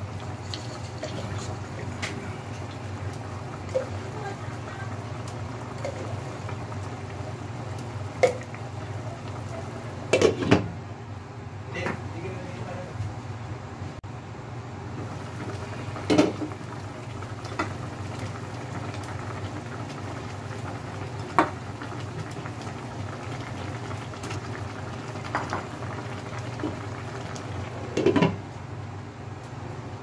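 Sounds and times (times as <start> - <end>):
broth bubbling in a pot: 0.0 - 10.8, 15.0 - 28.5.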